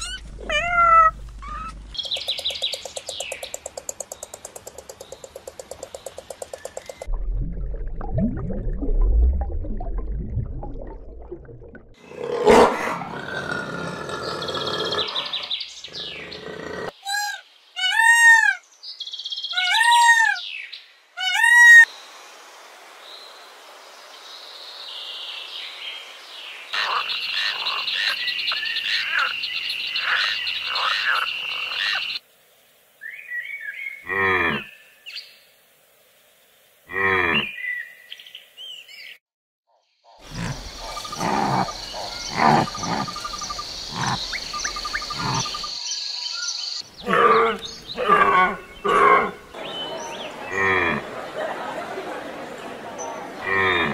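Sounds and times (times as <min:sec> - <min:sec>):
animal chirps rising and falling: 0:00.0 - 0:02.5.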